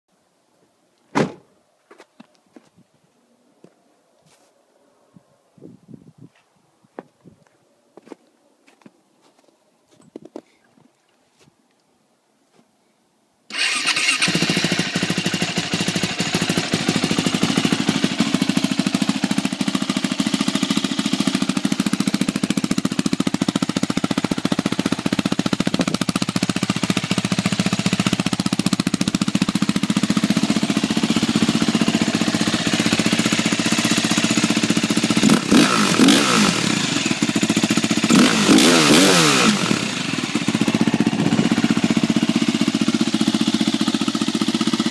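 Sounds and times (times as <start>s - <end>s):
engine revving: 13.5s - 23.5s, 24.2s - 44.9s
motorcycle engine starting and idling: 13.5s - 44.9s.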